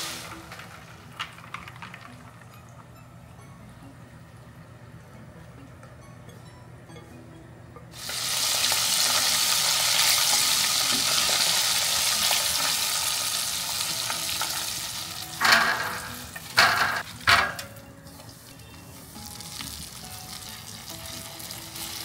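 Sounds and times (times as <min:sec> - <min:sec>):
chicken deep-frying in hot oil: 0:00.0 - 0:01.2, 0:07.9 - 0:22.0.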